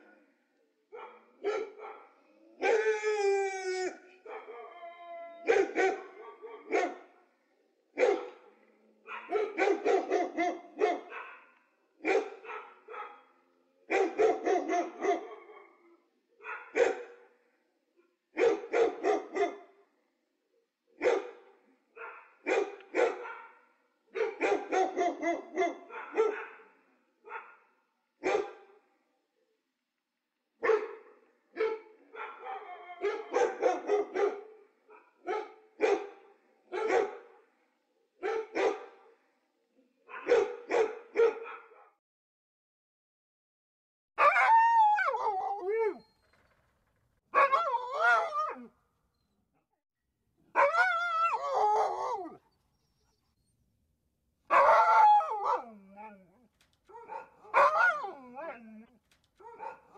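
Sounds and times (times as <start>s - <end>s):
dog barking: 0.9s - 2.9s, 4.2s - 4.7s, 5.4s - 7.3s, 7.9s - 17.3s, 18.3s - 19.9s, 21.0s - 28.8s, 30.6s - 37.6s, 38.2s - 39.3s, 40.0s - 42.0s, 47.3s - 48.7s, 50.5s - 52.4s, 54.5s - 56.2s, 56.9s - 59.9s.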